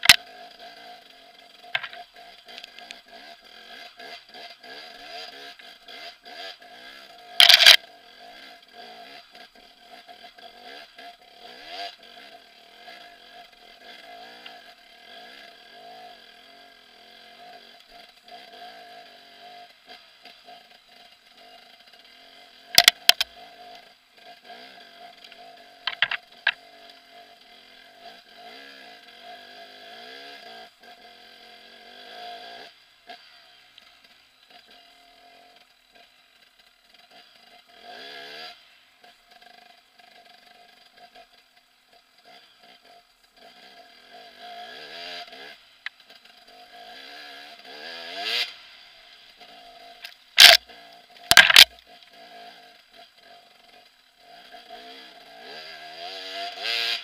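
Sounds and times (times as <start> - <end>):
two-stroke motorcycle engine revving: 0.0 - 57.0
sharp knocks: 25.9 - 26.6, 51.3 - 51.7.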